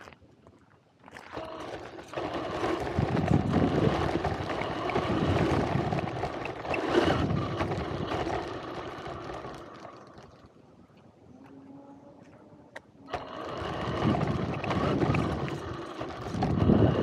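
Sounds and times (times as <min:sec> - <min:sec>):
tyres on gravel and pavement: 0:01.2 - 0:10.5, 0:12.8 - 0:17.0
rc car motor whine: 0:01.4 - 0:10.0, 0:13.1 - 0:17.0.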